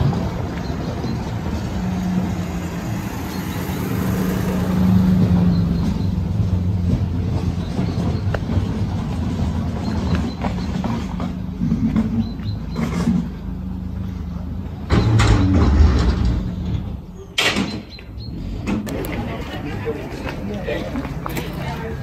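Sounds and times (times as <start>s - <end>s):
small car driving past: 0.0s - 17.1s
low engine hum: 0.0s - 17.3s.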